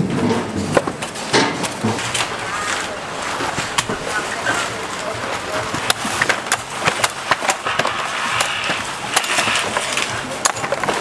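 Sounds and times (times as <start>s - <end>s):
coconuts being chopped: 5.7s - 11.0s.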